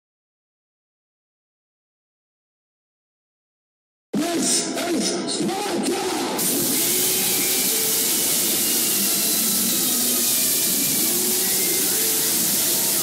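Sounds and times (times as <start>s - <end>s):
static-like hiss: 6.3s - 13.0s.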